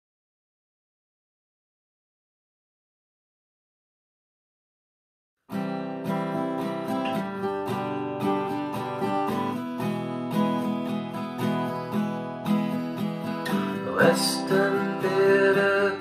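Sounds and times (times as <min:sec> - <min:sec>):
acoustic guitar strumming: 0:05.5 - 0:16.0.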